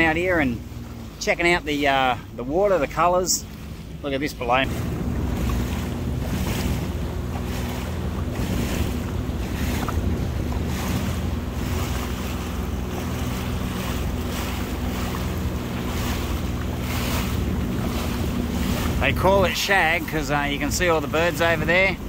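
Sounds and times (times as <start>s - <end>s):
personal watercraft engine running: 0.0s - 22.0s
water washing around hull: 0.0s - 22.0s
wind noise on microphone: 4.6s - 22.0s.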